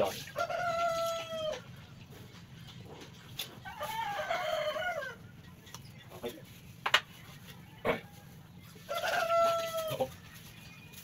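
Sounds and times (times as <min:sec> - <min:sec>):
rooster crowing: 0:00.4 - 0:01.6, 0:03.6 - 0:05.2, 0:07.8 - 0:10.1.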